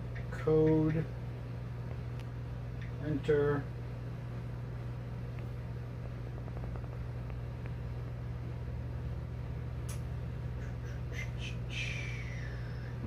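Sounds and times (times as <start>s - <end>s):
steady low hum: 0.0s - 13.0s
sharp faint click: 9.8s - 10.1s.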